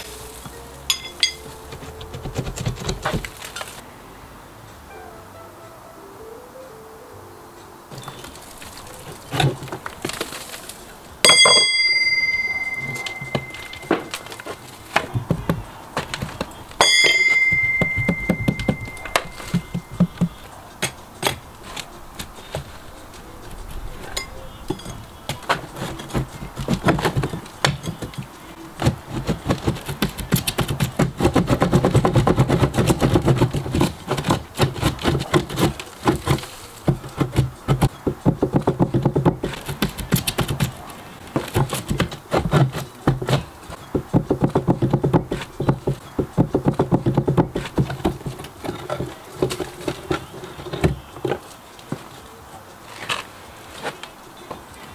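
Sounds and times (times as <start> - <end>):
metallic clangs: 0.0 - 3.7, 7.9 - 22.5
rapid scraping or chipping: 0.0 - 3.8, 7.9 - 11.2, 11.9 - 24.1, 24.8 - 54.2
tools tapping and knocking on metal: 0.4 - 3.6, 11.2 - 22.7, 24.2 - 52.2.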